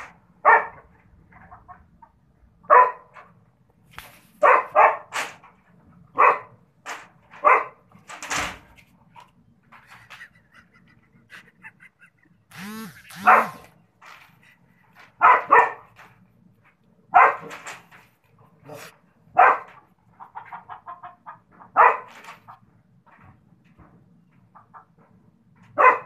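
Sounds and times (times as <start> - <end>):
dog barking: 0.4 - 0.8, 2.7 - 3.2, 4.4 - 5.1, 6.1 - 6.6, 7.4 - 7.8, 13.2 - 13.7, 15.2 - 16.0, 17.1 - 17.5, 18.7 - 19.8, 21.7 - 22.2, 25.8 - 26.0.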